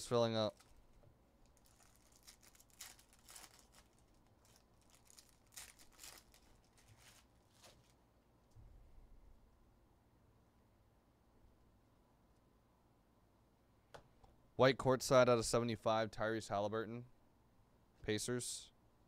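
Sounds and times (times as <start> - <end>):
foil wrapper crinkling and tearing: 0.4 - 0.8, 1.4 - 8.0
cards being handled: 1.5 - 8.0.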